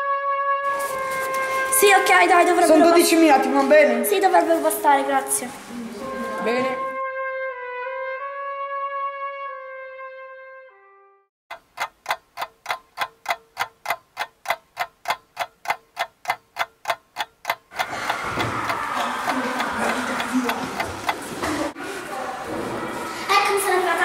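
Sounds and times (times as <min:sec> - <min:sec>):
brass-like falling notes: 0:06.0 - 0:11.2
clock-like ticking: 0:11.5 - 0:21.8
room noise: 0:11.6 - 0:24.0.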